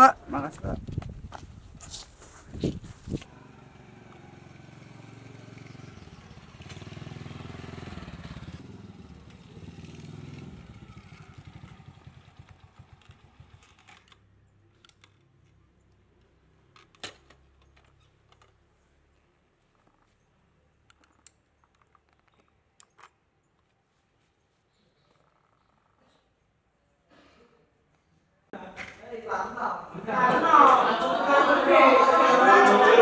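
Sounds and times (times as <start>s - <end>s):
motorcycle engine running: 3.1s - 14.2s.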